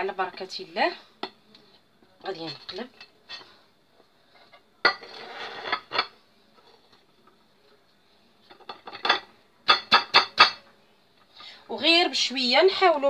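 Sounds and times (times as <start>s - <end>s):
scraping rub: 5.0s - 5.9s.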